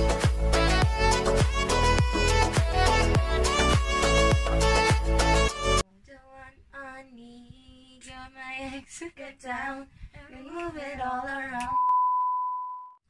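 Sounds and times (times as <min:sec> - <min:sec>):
loud backing music: 0:00.0 - 0:05.8
woman singing unaccompanied: 0:05.8 - 0:11.8.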